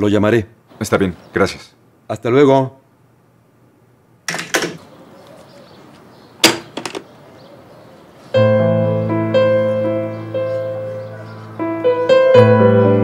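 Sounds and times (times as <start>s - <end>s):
telephone handset clattering: 4.3s - 4.8s, 6.4s - 7.1s
piano music with held chords: 8.2s - 13.0s.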